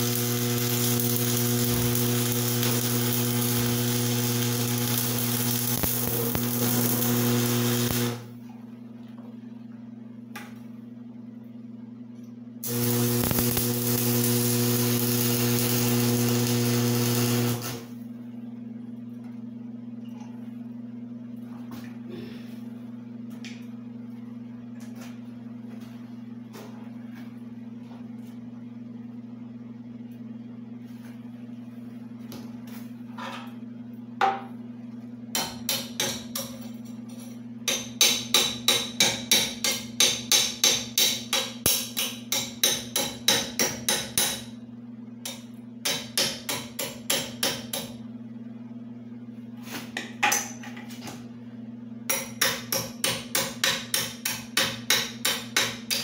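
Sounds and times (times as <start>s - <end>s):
welding arc crackling: 0.0s - 8.3s, 12.6s - 18.0s
electrical hum: 0.0s - 37.7s.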